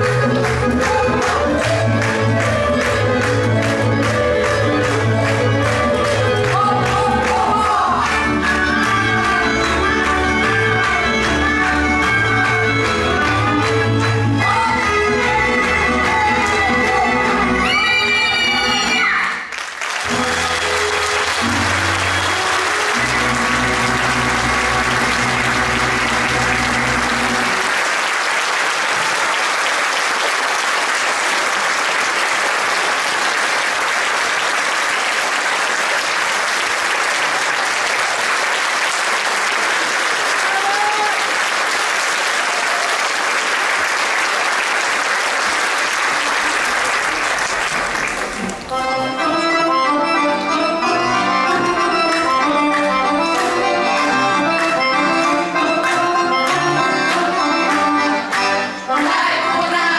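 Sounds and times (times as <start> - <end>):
audience applauding: 0.0 - 14.2, 19.2 - 48.9, 51.6 - 59.4
accordion-led folk music: 0.0 - 19.1, 20.0 - 27.8, 48.4 - 59.9.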